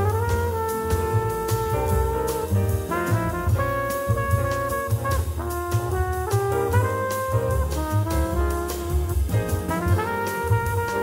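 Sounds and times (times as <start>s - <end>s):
bass: 0.0s - 11.0s
drum kit with light cymbals: 0.0s - 11.0s
trumpet: 0.0s - 11.0s
tenor saxophone: 6.2s - 11.0s.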